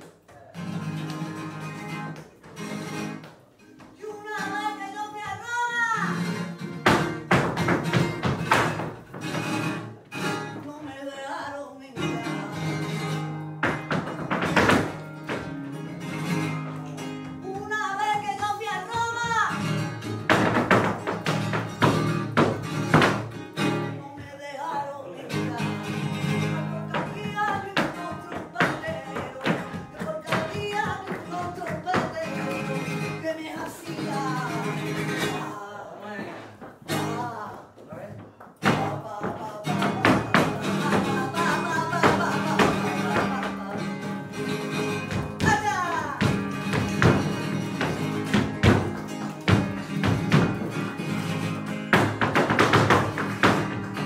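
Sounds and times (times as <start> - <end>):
flamenco guitar playing: 0.0 - 54.0
person singing: 3.9 - 6.4, 10.5 - 13.4, 23.8 - 38.0, 38.6 - 47.2
dancer's footwork strikes: 6.6 - 9.9, 12.8 - 24.4, 26.0 - 34.2, 36.6 - 54.0.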